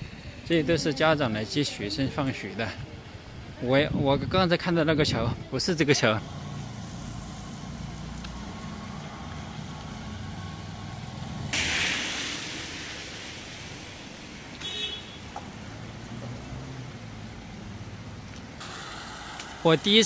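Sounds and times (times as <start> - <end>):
vehicle engines running: 5.2 - 20.0
loud hiss: 10.4 - 16.2, 18.6 - 20.0.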